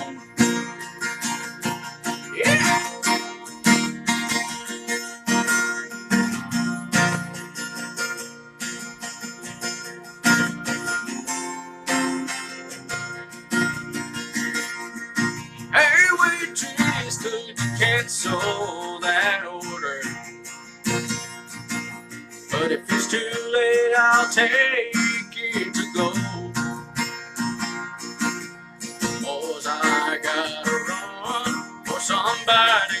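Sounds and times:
person singing: 0.0s - 1.2s, 1.8s - 5.7s, 15.2s - 20.3s, 22.5s - 26.9s, 29.0s - 33.0s
acoustic guitar strumming: 0.0s - 33.0s.

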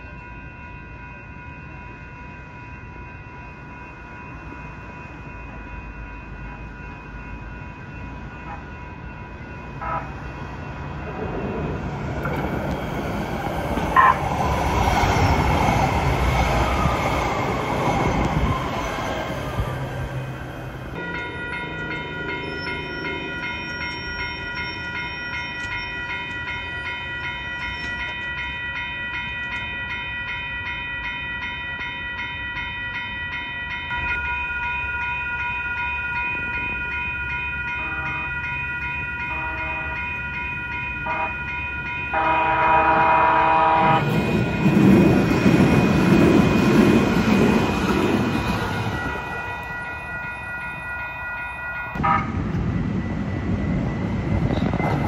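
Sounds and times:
crossing warning bells ringing: 0.0s - 55.0s
train wheels rumbling on rail: 4.4s - 29.8s, 37.8s - 50.1s, 51.9s - 55.0s
train horn: 9.8s - 10.2s, 14.0s - 14.2s, 37.8s - 38.4s, 39.3s - 40.1s, 41.0s - 41.4s, 42.1s - 44.1s, 52.0s - 52.4s.

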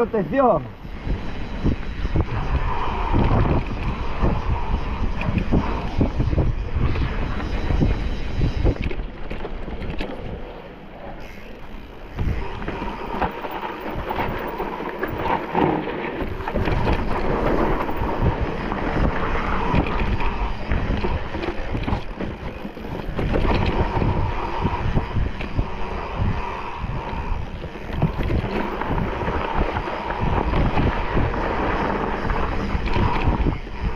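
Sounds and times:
bike tyre noise: 0.0s - 33.9s
wind buffeting microphone: 0.0s - 33.9s
bike rattling and knocking: 11.2s - 24.3s, 27.5s - 33.9s.

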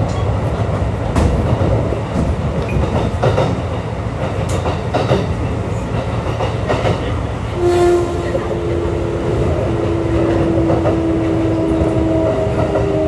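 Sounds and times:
train wheels rumbling on rail: 0.0s - 13.0s.

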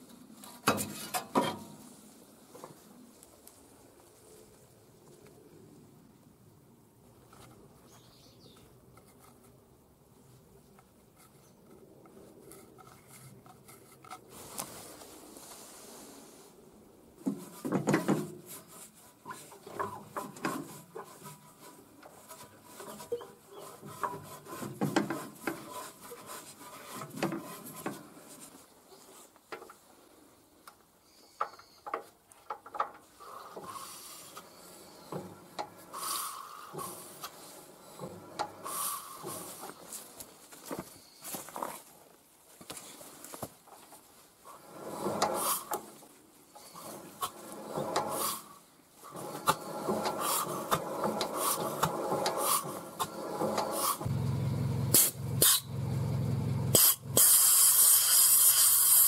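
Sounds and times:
gloved hand scraping rusty metal: 0.6s - 1.8s, 17.2s - 29.4s, 33.1s - 40.2s, 44.4s - 54.1s.

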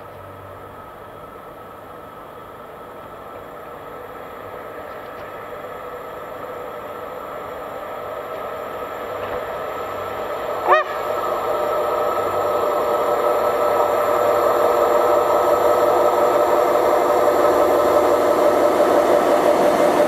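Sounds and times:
electric locomotive running: 0.0s - 20.0s
locomotive horn honk: 10.6s - 11.0s.

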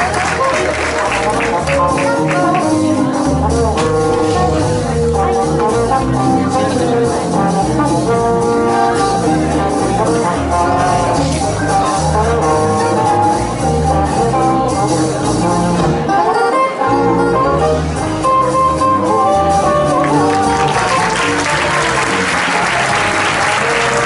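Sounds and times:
audience applause: 0.0s - 2.7s, 20.0s - 24.0s
instrumental music: 0.0s - 24.0s.

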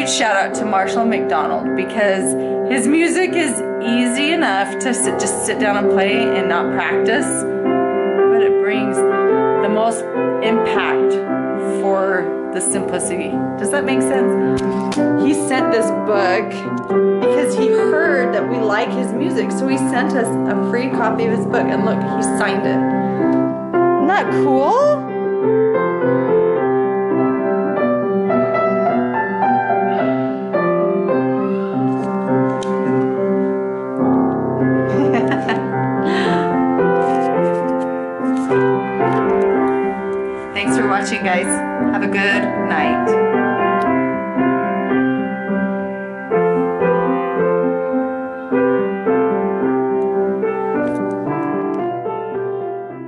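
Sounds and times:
calm piano piece: 0.0s - 53.0s.

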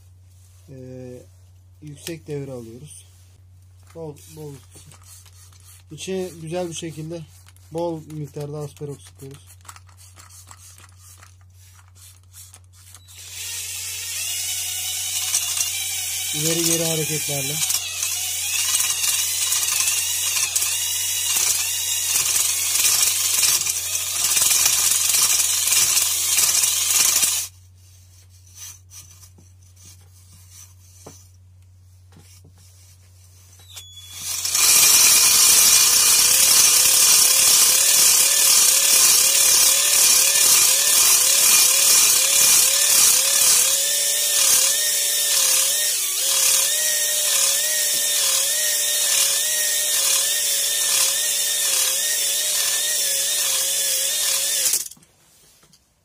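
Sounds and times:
drill spinning cylinder hone: 12.8s - 27.5s, 33.7s - 55.0s.

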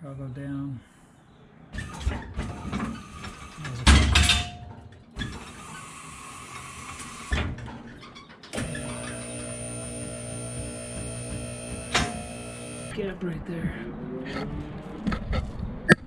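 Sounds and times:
hydraulic pump motor hum: 8.5s - 13.0s
hydraulic hiss: 8.6s - 12.9s.

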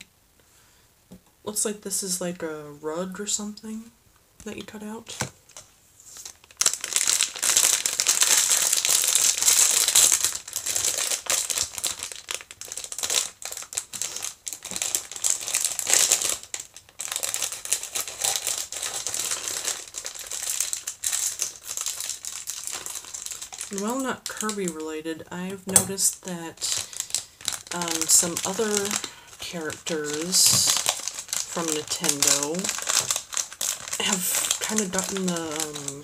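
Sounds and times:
packaging crinkling and rustling: 5.1s - 36.0s.

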